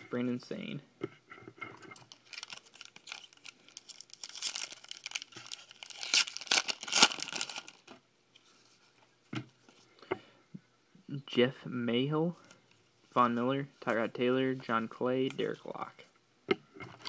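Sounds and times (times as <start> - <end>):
wrapper tearing and crinkling: 2.0 - 7.9.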